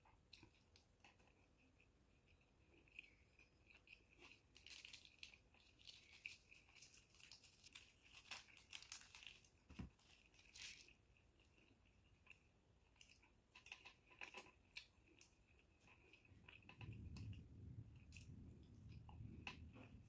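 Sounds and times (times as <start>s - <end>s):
paper wrapper crinkling and tearing: 4.2s - 11.0s.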